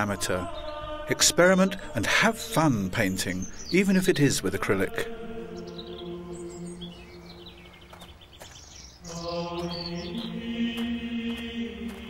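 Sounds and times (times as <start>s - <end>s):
long held chant-like notes: 0.0s - 3.0s, 4.4s - 7.8s, 9.0s - 12.0s
birds chirping and twittering: 0.0s - 12.0s.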